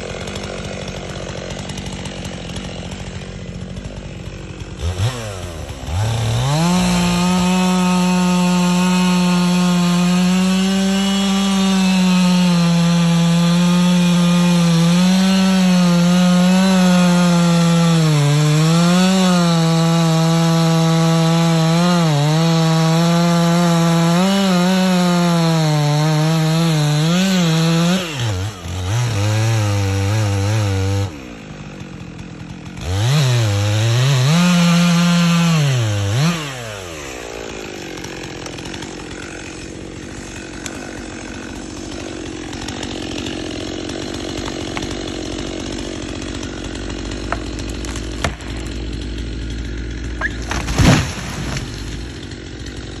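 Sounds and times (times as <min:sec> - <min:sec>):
chainsaw cutting tree trunk: 0:00.0 - 0:53.0
tree crashing to the ground: 0:42.2 - 0:52.8.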